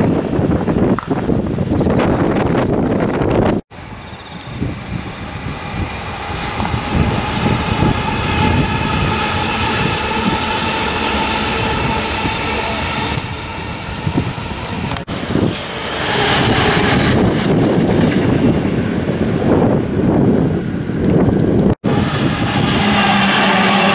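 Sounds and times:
train wheels rumbling: 0:00.0 - 0:23.9
wind on microphone: 0:00.0 - 0:23.9
electric train motor whine: 0:03.9 - 0:15.1.

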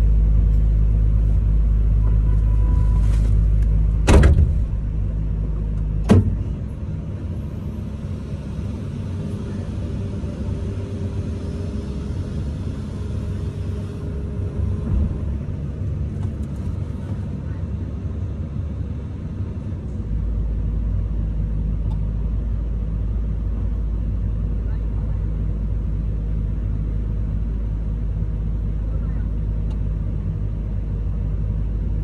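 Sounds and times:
diesel engine running: 0:00.0 - 0:32.0
faint steady whine: 0:00.0 - 0:32.0
sharp knocks: 0:04.0 - 0:04.7.

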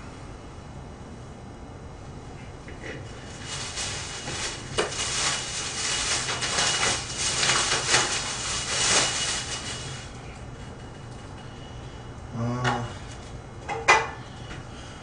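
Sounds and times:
rustling and crackling of objects: 0:02.6 - 0:11.6.

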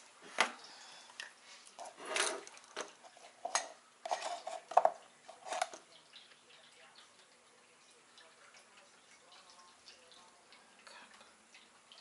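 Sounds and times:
kitchen items knocking and clattering: 0:01.8 - 0:05.9.

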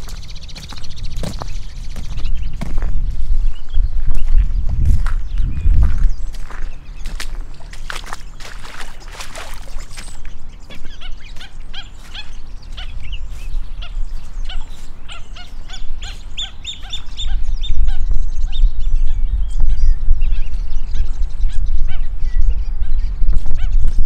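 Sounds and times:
footsteps: 0:00.0 - 0:16.3
waterfowl calling: 0:06.4 - 0:18.0.

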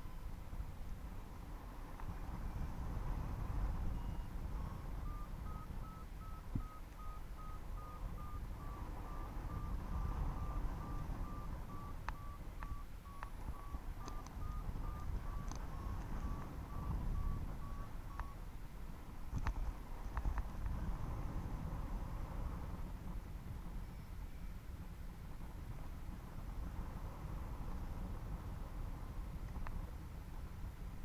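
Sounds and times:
wind rumble on microphone: 0:00.0 - 0:31.0
variometer beeping: 0:03.4 - 0:18.5, 0:23.8 - 0:24.6
soft clicks: 0:14.0 - 0:16.5.

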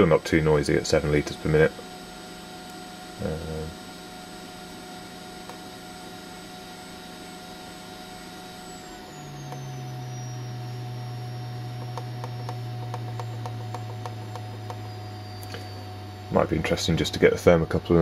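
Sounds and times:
air pump humming: 0:00.0 - 0:17.8
high thin whine: 0:08.1 - 0:17.8.

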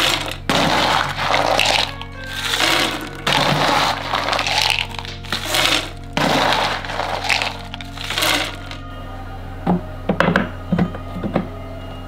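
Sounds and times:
plastic tube scraping against rock: 0:00.0 - 0:08.8
soft background music: 0:00.0 - 0:12.0.

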